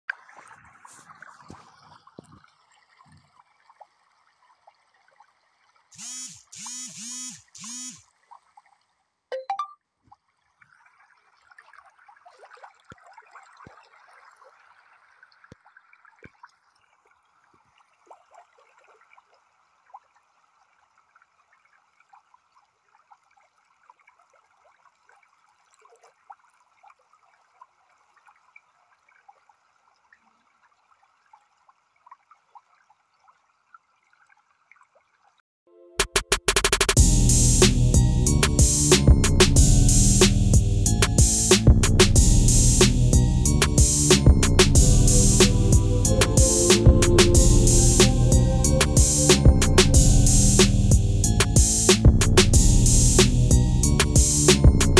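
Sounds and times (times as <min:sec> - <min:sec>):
water trickling: 0:00.1 - 0:05.9, 0:10.1 - 0:35.4
short loud pitched sounds: 0:35.9 - 0:54.9.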